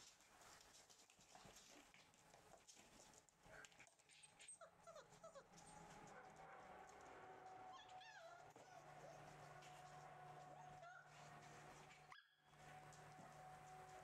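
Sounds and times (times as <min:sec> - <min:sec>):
puppies whimpering: 0:04.4 - 0:06.0, 0:07.6 - 0:11.2.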